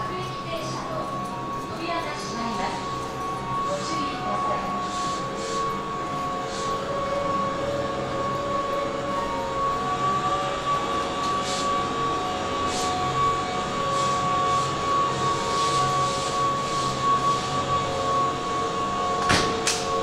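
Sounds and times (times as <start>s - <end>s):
electric train high-pitched hum: 0.0s - 20.0s
soft air hisses: 4.8s - 5.7s, 6.4s - 6.9s.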